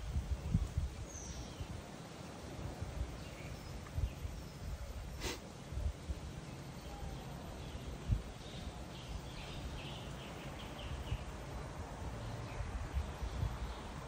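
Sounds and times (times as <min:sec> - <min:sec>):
bird chirping: 0:01.0 - 0:01.8, 0:03.1 - 0:04.8, 0:06.4 - 0:11.4.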